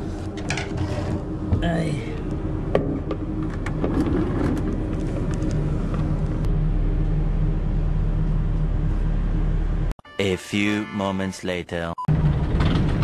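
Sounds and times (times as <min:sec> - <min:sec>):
ship engine drone: 0:00.0 - 0:09.9.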